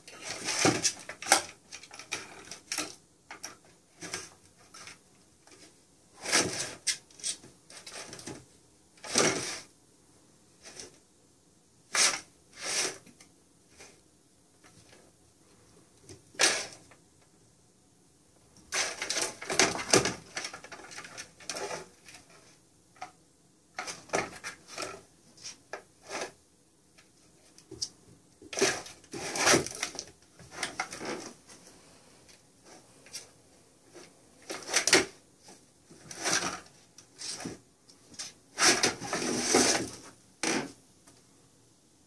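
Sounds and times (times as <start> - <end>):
plastic toy scraping on wood floor: 0.1 - 8.4, 9.0 - 9.7, 11.9 - 13.1, 16.4 - 16.8, 18.7 - 22.6, 23.8 - 26.4, 28.4 - 31.6, 32.6 - 40.8.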